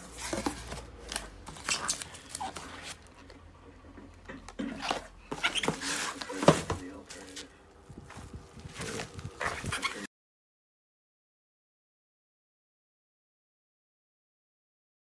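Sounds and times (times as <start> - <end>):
bubble wrap crinkling: 0.0 - 3.2
cardboard rustling: 0.0 - 3.4, 4.4 - 10.1.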